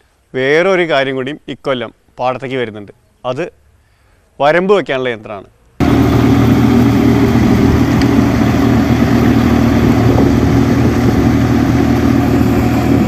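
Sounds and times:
tractor diesel engine under load: 0:05.8 - 0:13.0.

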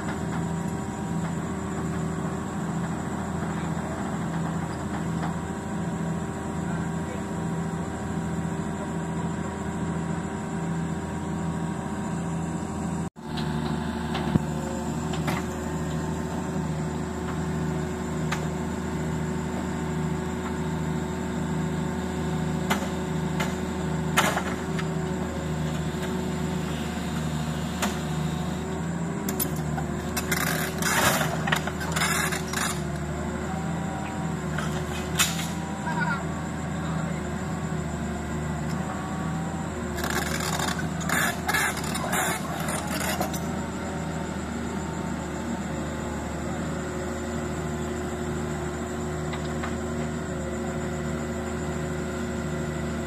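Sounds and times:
diesel engine throbbing: 0:00.0 - 0:51.8.

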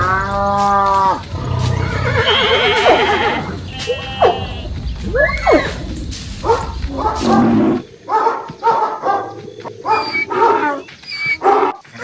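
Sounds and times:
horse whinny: 0:01.4 - 0:05.8.

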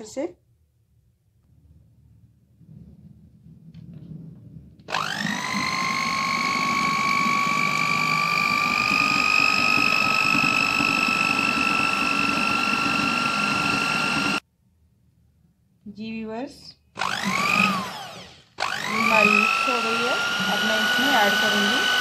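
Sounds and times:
electric hand mixer whine: 0:04.8 - 0:14.4, 0:17.0 - 0:22.0.

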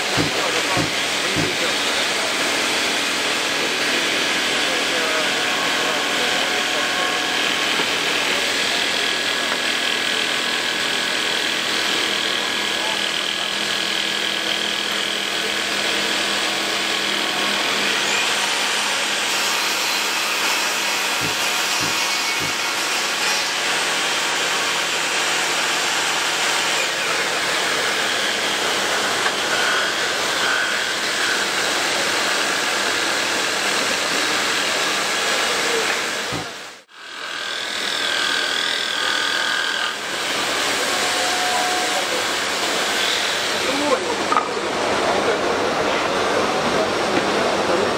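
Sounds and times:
table saw ripping wood: 0:05.8 - 0:44.6.

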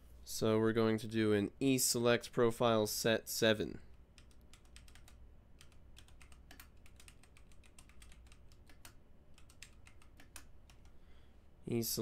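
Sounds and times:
faint keyboard typing: 0:03.8 - 0:11.0.

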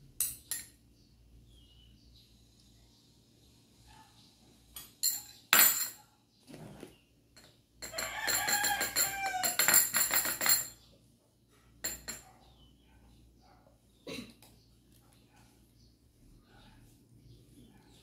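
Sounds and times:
metal spoon clinking on dish: 0:00.2 - 0:00.8, 0:04.8 - 0:06.0, 0:07.4 - 0:10.8, 0:11.8 - 0:12.3
rooster crowing: 0:07.9 - 0:09.8.

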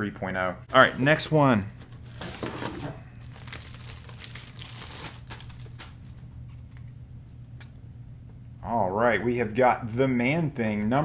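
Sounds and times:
plastic bag crinkling: 0:02.0 - 0:06.1.

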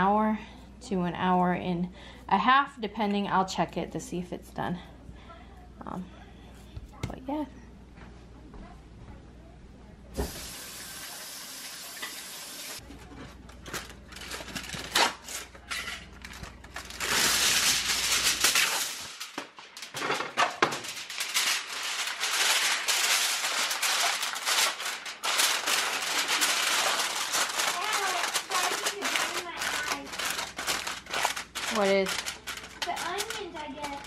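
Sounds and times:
aluminium foil crinkling: 0:12.8 - 0:34.0.

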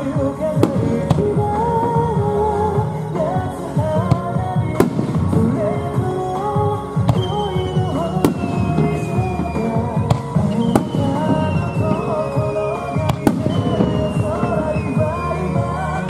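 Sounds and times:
firework bangs: 0:00.0 - 0:02.2, 0:03.8 - 0:16.0
falling firework whistle: 0:07.1 - 0:16.0.

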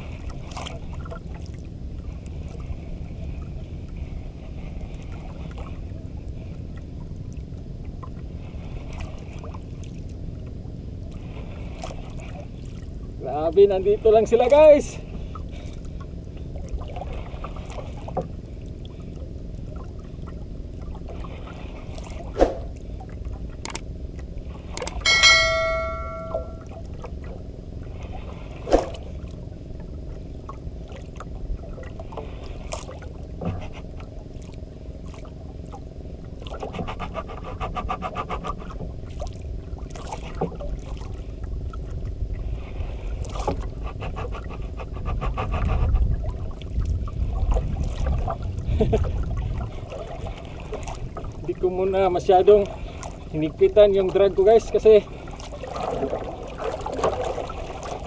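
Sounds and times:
sea and wind noise: 0:00.0 - 0:58.0
sharp knocks: 0:25.1 - 0:26.6
ringing metallic clink: 0:25.1 - 0:26.7.

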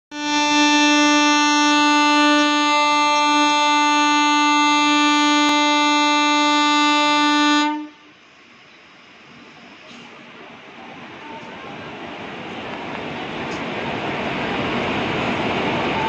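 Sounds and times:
locomotive horn: 0:00.1 - 0:08.0.

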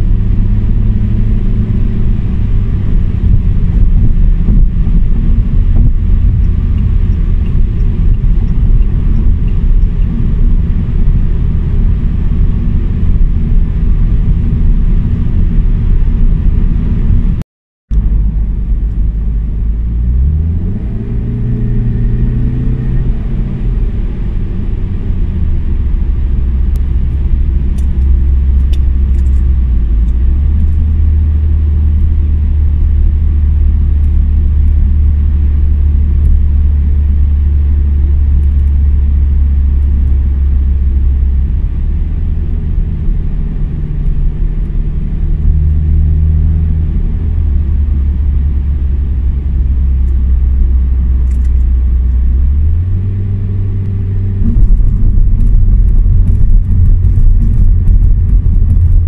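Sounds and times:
car exhaust rumble in cabin: 0:00.0 - 0:59.0
road noise: 0:00.0 - 0:59.0.

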